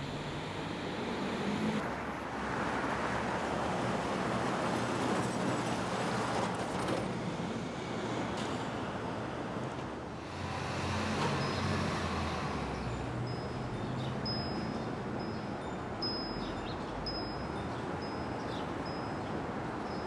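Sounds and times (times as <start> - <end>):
heavy vehicle engine hum: 0.0 - 3.0, 10.0 - 15.2
passing cars: 0.0 - 16.0.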